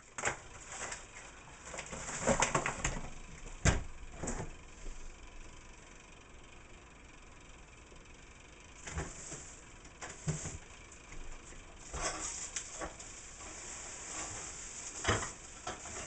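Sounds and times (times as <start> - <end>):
steady hiss: 8.7 - 16.0
pots and utensils clattering: 11.9 - 16.0.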